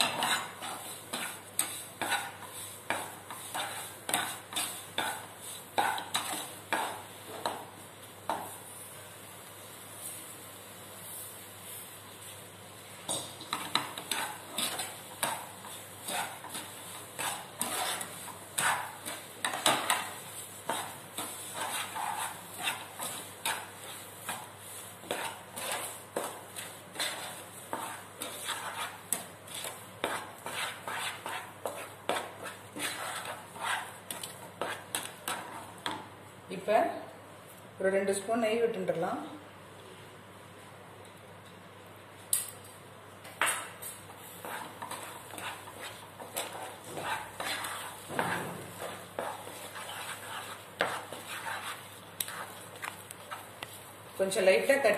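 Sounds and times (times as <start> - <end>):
wooden spatula scraping a pan: 0.0 - 7.7, 13.1 - 36.0, 43.4 - 54.9.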